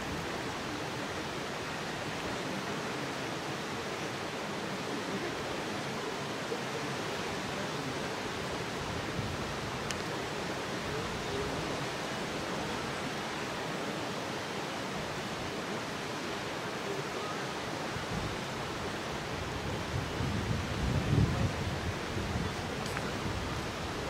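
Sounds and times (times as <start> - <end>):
faint click: 9.8 - 10.1, 22.8 - 23.1.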